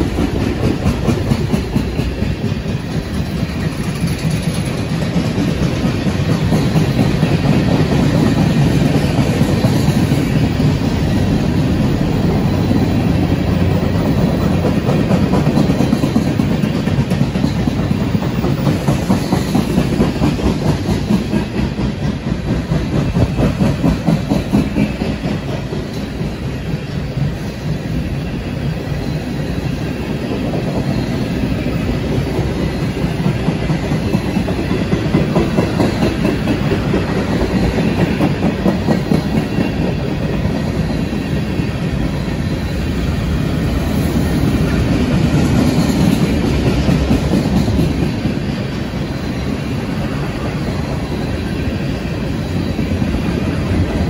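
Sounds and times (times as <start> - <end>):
wheels clicking over rail joints: 0.0 - 27.8, 30.2 - 42.3
freight train rumble: 0.0 - 54.0.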